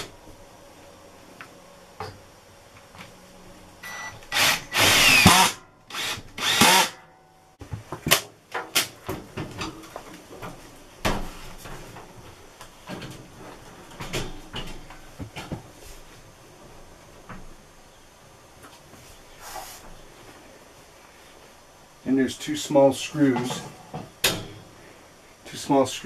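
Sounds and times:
cordless drill driving screws: 0:03.9 - 0:07.0.

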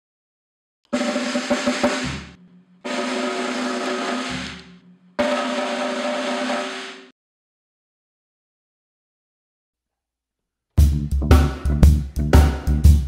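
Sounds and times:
snare drum rolls: 0:00.9 - 0:07.1.

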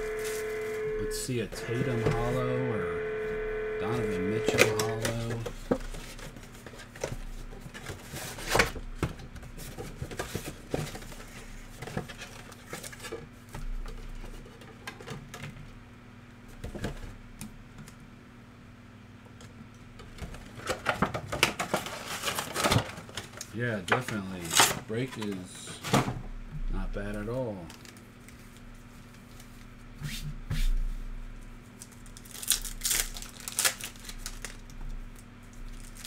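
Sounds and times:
faint electrical hum: 0:00.0 - 0:36.0
card packs rustling and clicking: 0:03.9 - 0:08.8, 0:20.4 - 0:25.8, 0:27.6 - 0:29.6, 0:31.8 - 0:36.0.

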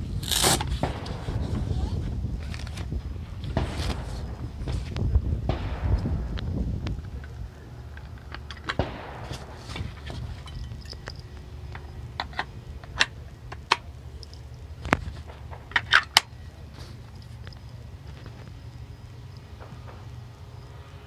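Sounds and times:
wind rumble on microphone: 0:00.0 - 0:20.2
shotgun metal clicks and knocks: 0:07.0 - 0:16.4.

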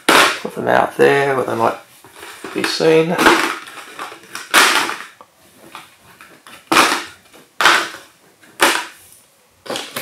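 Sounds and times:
plastic packets landing on pile: 0:02.3 - 0:09.0.

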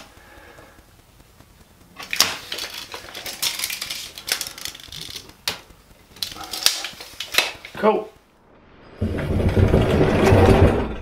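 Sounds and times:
tape measure clicking and rattling: 0:02.0 - 0:07.8.

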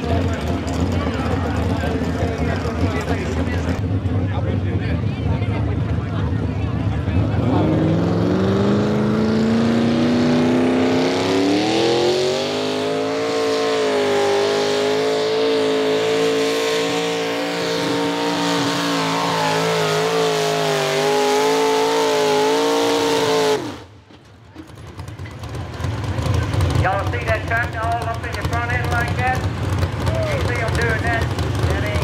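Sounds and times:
tractor engine revving high: 0:06.4 - 0:24.0.

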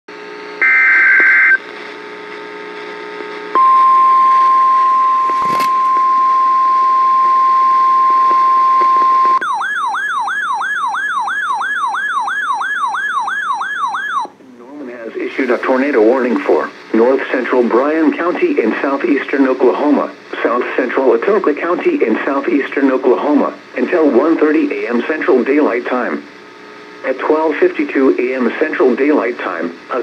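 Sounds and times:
steady warning alarm tone: 0:03.6 - 0:14.3
warbling siren alarm: 0:07.6 - 0:14.3.

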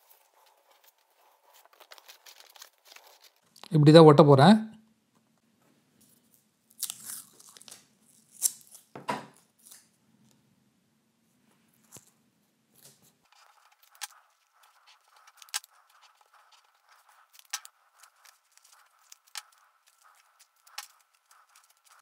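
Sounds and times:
paper handling: 0:00.0 - 0:03.4.

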